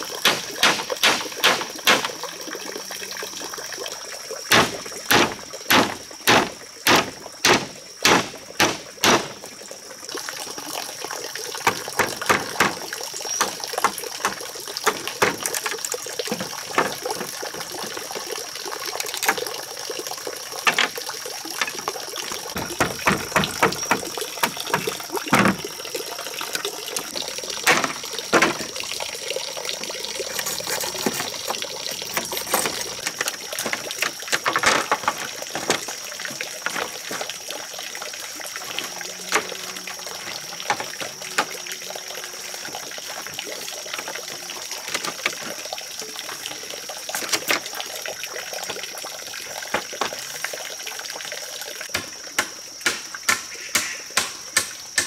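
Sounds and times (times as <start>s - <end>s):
hammer striking bamboo: 0.2s - 2.2s, 4.5s - 9.4s, 11.7s - 12.8s, 22.6s - 25.6s, 51.9s - 55.0s
machete cutting bamboo: 0.2s - 2.2s, 4.5s - 9.4s, 51.9s - 55.0s.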